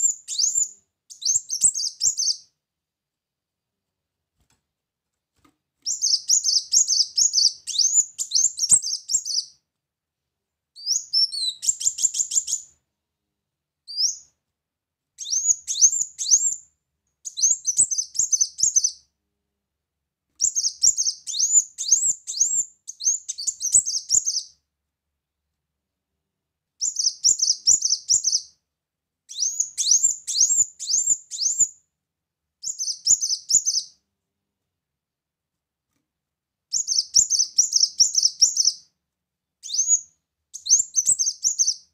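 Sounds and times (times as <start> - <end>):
bird singing rapid high chirps: 0.0 - 2.5, 5.9 - 9.6, 10.8 - 12.7, 15.2 - 16.6, 17.2 - 19.0, 20.4 - 24.6, 26.8 - 28.5, 29.3 - 31.8, 32.6 - 34.0, 36.7 - 38.9, 39.6 - 41.9.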